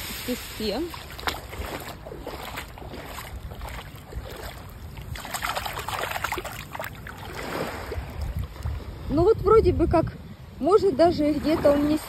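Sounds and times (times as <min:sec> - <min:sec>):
seawater sloshing and splashing: 0:00.0 - 0:09.0.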